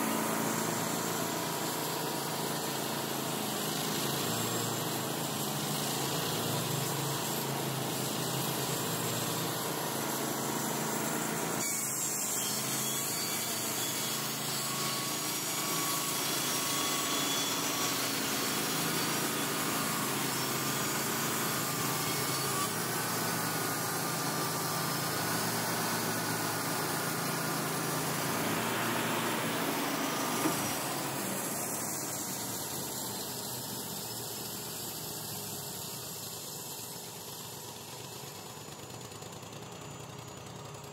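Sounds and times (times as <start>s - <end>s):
sawmill running: 0.0s - 40.9s.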